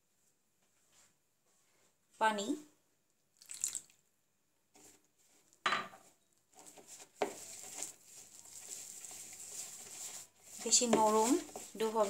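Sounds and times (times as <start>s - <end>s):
hand mixing flour in bowl: 4.7s - 5.5s, 6.1s - 12.0s.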